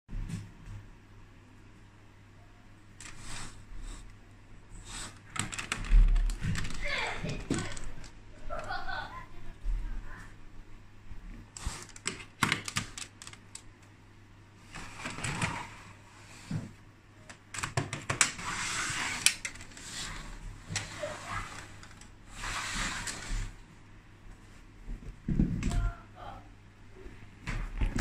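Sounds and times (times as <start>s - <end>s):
plastic bricks clicking and scraping: 5.3s - 8.1s.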